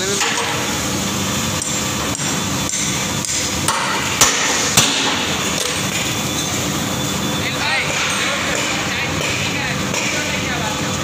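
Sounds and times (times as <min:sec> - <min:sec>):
steady machine hum: 0:00.0 - 0:11.0
hammer tapping metal: 0:01.6 - 0:06.1.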